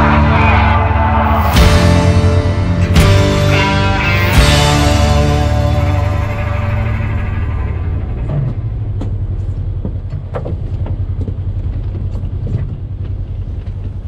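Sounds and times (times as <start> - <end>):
music: 0.0 - 8.8
off-road vehicle engine: 0.0 - 14.0
knocks and rattles: 8.2 - 14.0.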